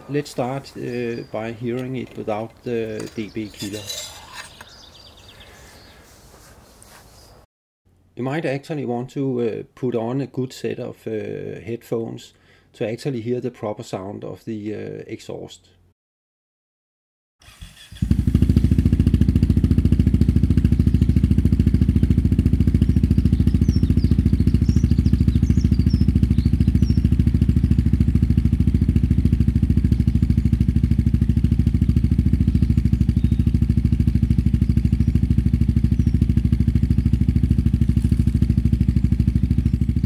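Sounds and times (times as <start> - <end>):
motorcycle engine running: 0.4 - 5.4, 17.5 - 40.0.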